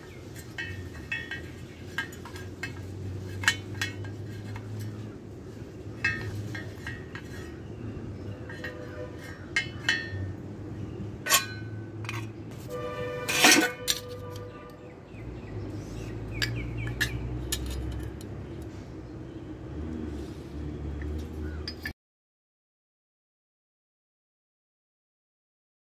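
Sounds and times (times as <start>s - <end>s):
steel pieces clinking on concrete: 0.1s - 5.2s, 5.9s - 12.4s, 13.2s - 14.6s, 16.3s - 18.7s, 21.6s - 21.9s.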